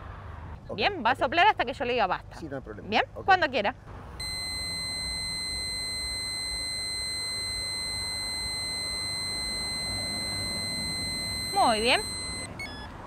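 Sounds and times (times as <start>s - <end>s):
breathalyzer high-pitched tone: 4.2s - 13.0s.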